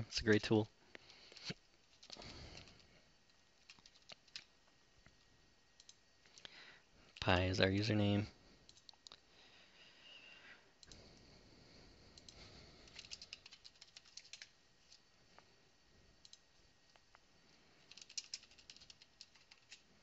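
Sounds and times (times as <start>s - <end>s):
keyboard typing: 1.4s - 2.8s, 3.6s - 4.5s, 5.8s - 6.0s, 12.2s - 15.0s, 17.8s - 19.8s.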